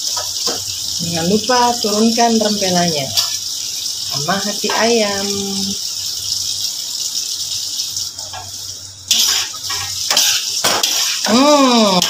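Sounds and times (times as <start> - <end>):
stir-fry sizzling in a wok: 0.0 - 12.0
metal spatula scraping a pan: 9.1 - 11.4.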